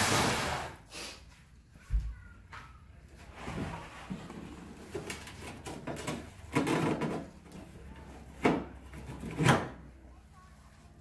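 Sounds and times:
tools knocking and scraping: 3.6 - 9.8.

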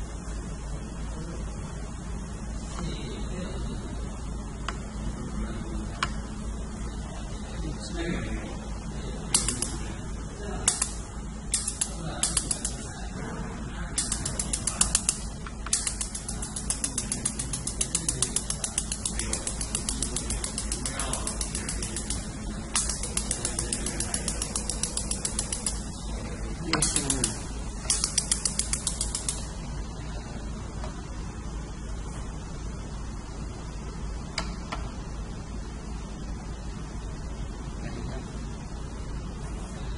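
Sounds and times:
low machine hum: 0.0 - 39.9
laser welder ticking: 9.3 - 9.9, 10.6 - 13.0, 14.0 - 29.7.

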